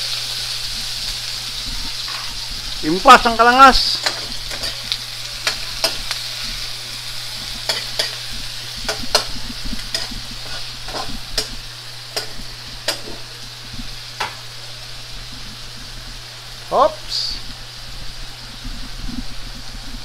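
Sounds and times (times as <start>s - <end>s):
shrimp sizzling in hot oil: 0.0s - 20.0s
metal spatula scraping wok: 3.9s - 13.3s.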